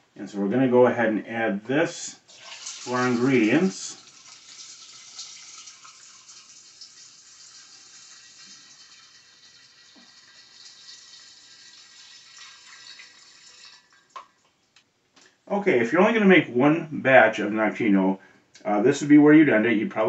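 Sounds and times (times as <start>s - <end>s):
liquid pouring through funnel: 2.2s - 14.6s.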